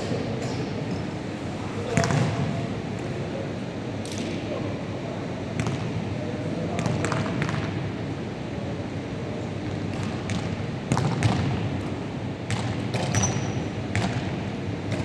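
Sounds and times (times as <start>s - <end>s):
low background noise: 0.0s - 15.0s
basketballs bouncing on hardwood floor: 12.5s - 14.3s.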